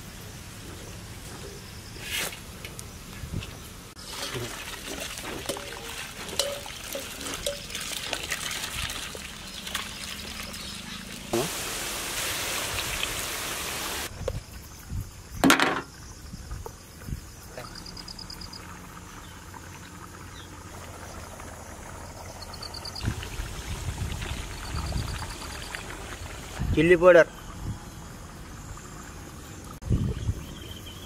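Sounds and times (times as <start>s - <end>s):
insects chirping: 0.0s - 31.0s
potato strips deep-frying in oil: 4.0s - 14.1s.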